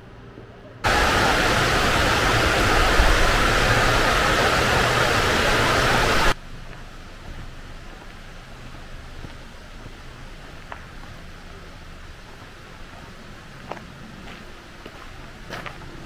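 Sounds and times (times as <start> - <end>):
waterfall rushing: 0.8 - 6.4.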